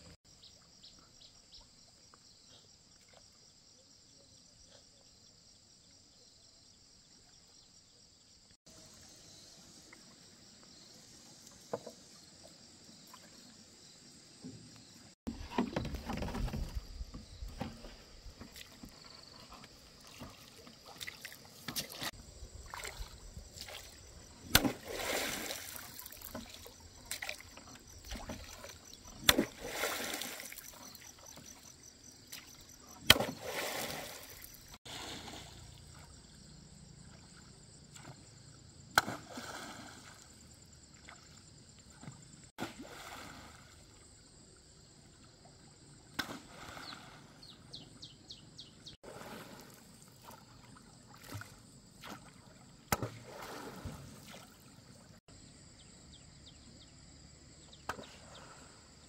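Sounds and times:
oars splashing in water: 0:15.3 - 0:38.4, 0:39.0 - 0:44.0, 0:49.0 - 0:55.2
insect chirring: 0:22.2 - 0:34.8.

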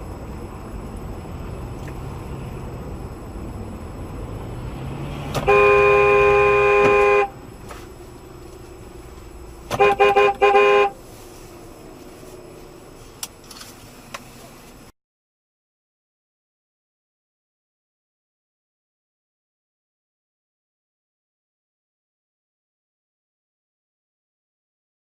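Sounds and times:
engine and road noise: 0:00.0 - 0:15.0
car horn blasts: 0:05.3 - 0:07.4, 0:09.7 - 0:11.0.

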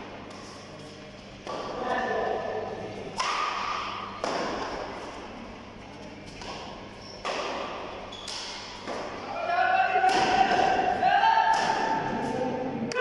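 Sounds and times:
rackets hitting shuttlecock: 0:01.4 - 0:02.0, 0:03.1 - 0:05.0, 0:06.3 - 0:09.3, 0:09.9 - 0:12.4.

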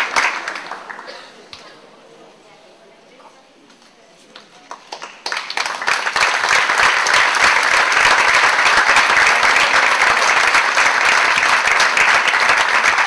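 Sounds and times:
large audience applauding: 0:00.0 - 0:01.2, 0:04.7 - 0:13.0.

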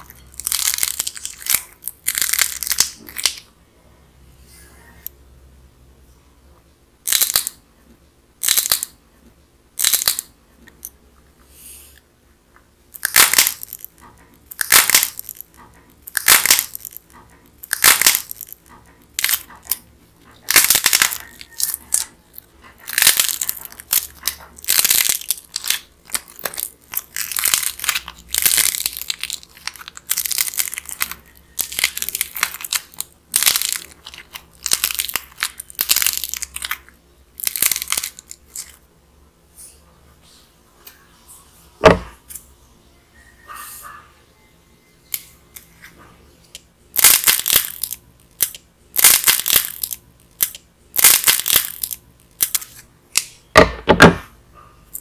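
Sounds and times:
dried clay crackling and tearing: 0:00.0 - 0:03.4, 0:20.4 - 0:38.8.

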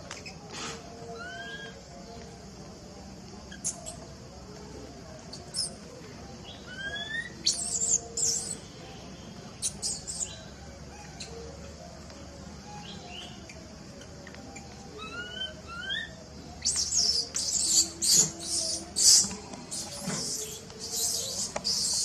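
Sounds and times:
steady high hiss: 0:00.0 - 0:22.0
shrill chirps and squeaks: 0:09.6 - 0:10.4, 0:15.0 - 0:22.0.

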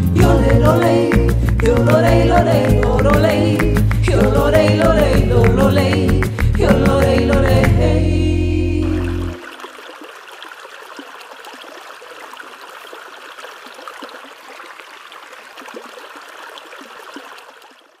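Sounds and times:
stream trickling over stones: 0:08.8 - 0:18.0.

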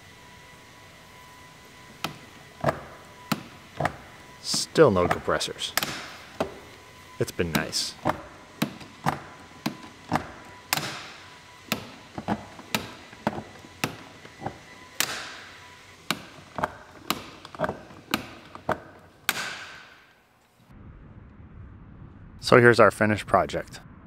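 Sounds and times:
rivets snapping: 0:05.8 - 0:06.5, 0:16.1 - 0:20.0.

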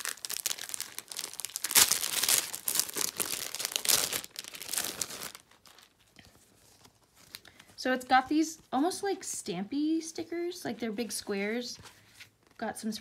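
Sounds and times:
plastic packaging crinkling: 0:00.0 - 0:07.6.

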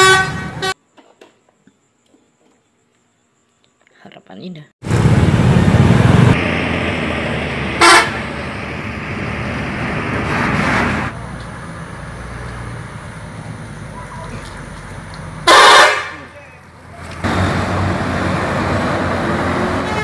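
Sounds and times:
bus horn toot: 0:00.0 - 0:00.8, 0:07.8 - 0:08.3, 0:15.4 - 0:16.4, 0:19.6 - 0:20.0
buses rumbling in traffic: 0:00.0 - 0:00.8, 0:04.8 - 0:20.0.

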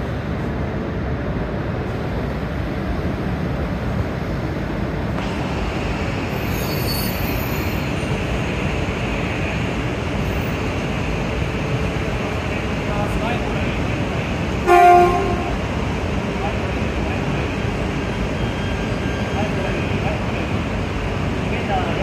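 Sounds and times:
train rail rumble: 0:00.0 - 0:22.0
high hissing squeal: 0:06.0 - 0:08.2.

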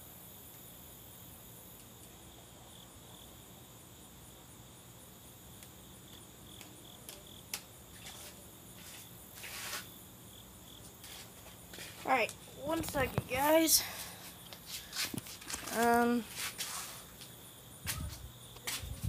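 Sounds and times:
insects chirping: 0:00.0 - 0:19.0
short rustle: 0:07.9 - 0:09.9, 0:14.0 - 0:17.3.

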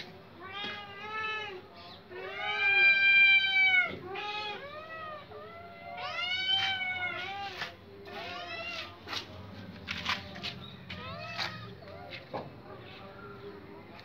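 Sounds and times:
cat meowing: 0:00.4 - 0:08.9.

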